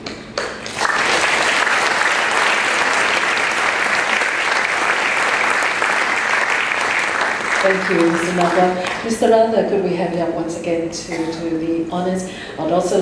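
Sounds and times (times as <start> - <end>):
audience applauding: 0.4 - 9.1.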